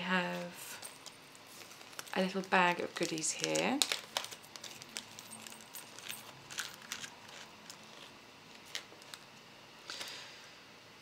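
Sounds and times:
tiny jingle bells jingling: 4.3 - 7.6.

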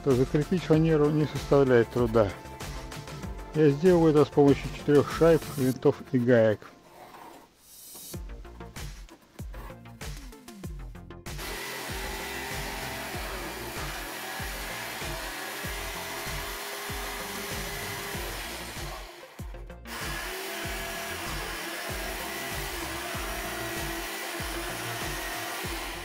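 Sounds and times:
jigsaw cutting plywood: 11.3 - 26.0.

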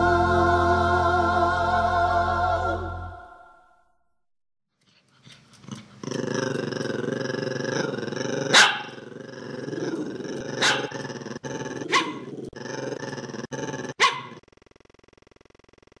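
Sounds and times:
dog growling: 5.3 - 14.4
dog barking sharply: 8.5 - 8.9, 14.0 - 14.4.

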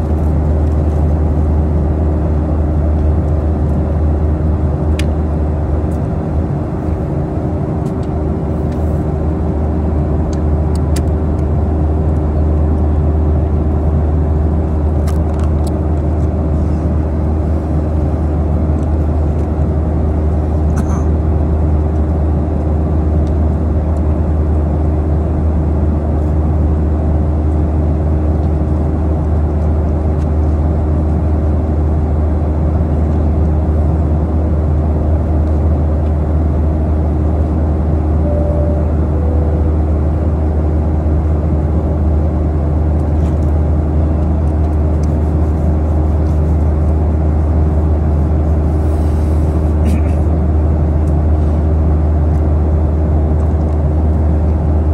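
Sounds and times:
airplane cabin engine rush: 0.0 - 54.9
two-tone hum: 38.1 - 41.0
two-note falling tone: 38.2 - 40.4.

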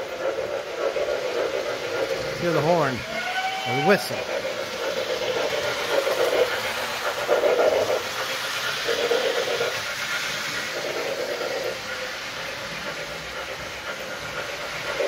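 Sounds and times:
steady steam hiss: 0.0 - 15.0
model steam whistle blasts: 3.0 - 4.0.

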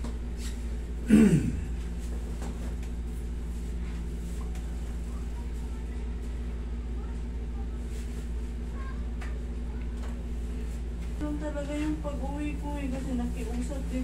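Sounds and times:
low machine hum: 0.0 - 14.0
person groaning: 1.1 - 1.8.

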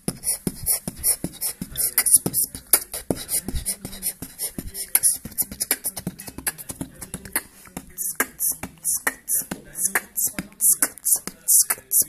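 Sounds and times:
lovebird chattering: 7.3 - 12.0.

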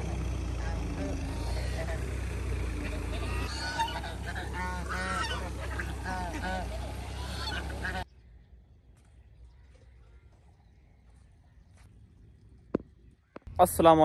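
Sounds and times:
geese honking: 0.0 - 8.1.

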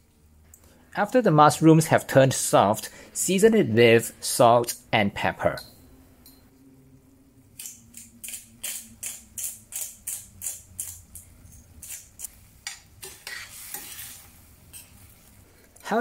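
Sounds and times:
metal spoon stirring in pan: 8.6 - 15.4.

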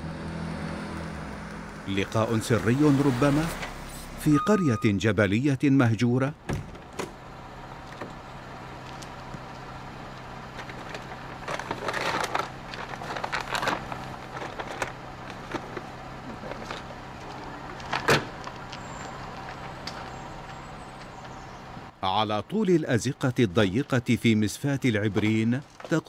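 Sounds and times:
car idling: 6.2 - 25.8.

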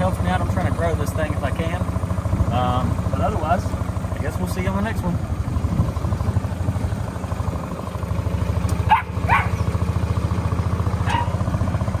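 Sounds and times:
engine idling: 0.0 - 12.0
dog barking: 8.8 - 9.6, 11.0 - 11.4.

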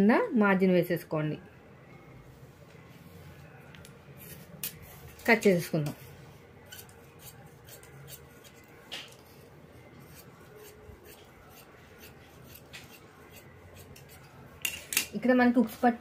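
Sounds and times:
scissors snipping fabric: 6.7 - 9.2, 10.0 - 14.3.

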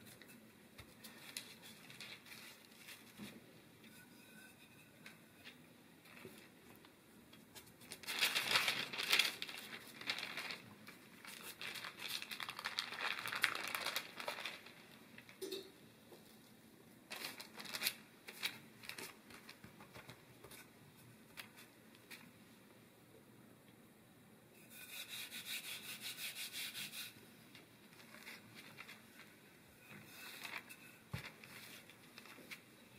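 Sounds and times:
paper crinkling: 0.9 - 3.4, 7.6 - 15.4, 17.1 - 20.7, 27.5 - 29.4, 30.0 - 32.7.

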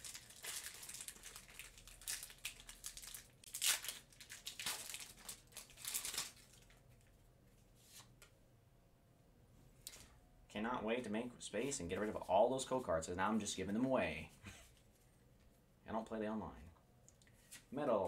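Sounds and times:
foil wrapper crinkling and tearing: 0.0 - 7.0.

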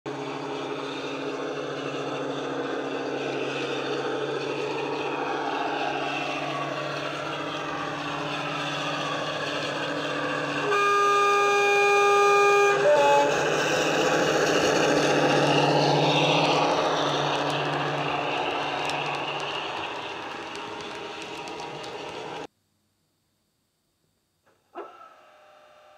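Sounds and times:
diesel locomotive engine running: 0.1 - 22.5
two-tone horn: 10.0 - 14.2.

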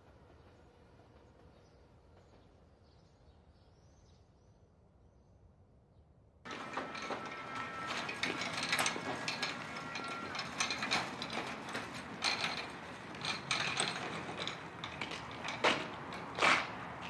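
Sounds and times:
wire trolley rattling on road: 6.5 - 17.0.

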